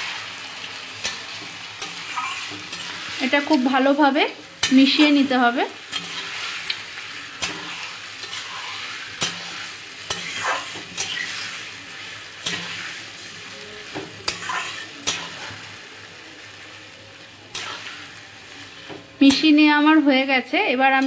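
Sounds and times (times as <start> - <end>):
chicken sizzling in a pan: 0.0 - 21.0
spatula scraping a pan: 1.0 - 3.9, 4.6 - 15.7, 17.5 - 19.1.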